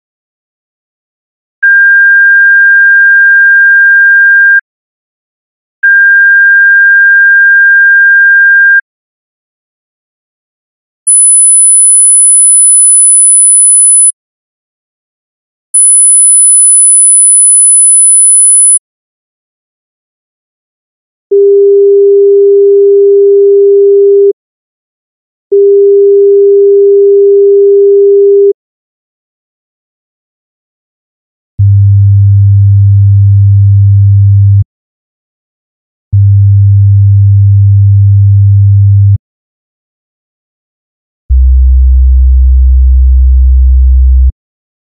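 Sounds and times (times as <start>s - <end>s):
high-pitched sine test tone: 11.1s - 14.1s, 15.8s - 18.8s
low sine-wave test tone: 41.3s - 44.3s.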